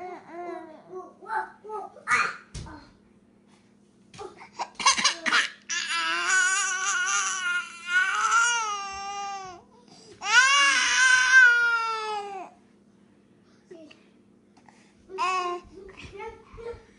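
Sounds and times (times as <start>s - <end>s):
infant crying: 5.7s - 9.6s, 10.2s - 12.5s.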